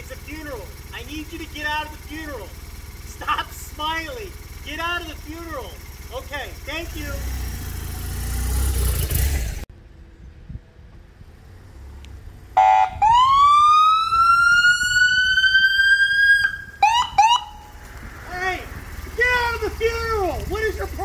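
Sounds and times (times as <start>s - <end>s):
low engine rumble: 0.0s - 21.0s
police siren wailing: 12.6s - 17.8s.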